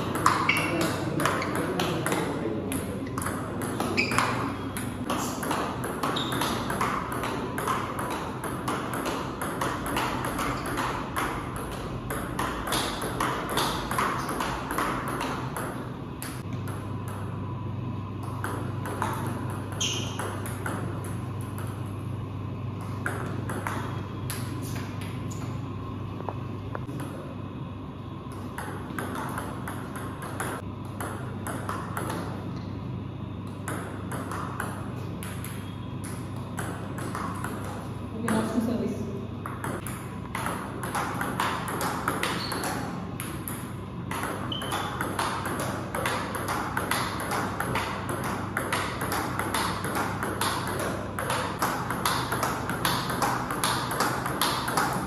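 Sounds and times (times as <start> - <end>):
table tennis ball clicking: 0.0 - 16.8, 39.4 - 55.0
steady low hum: 0.0 - 55.0.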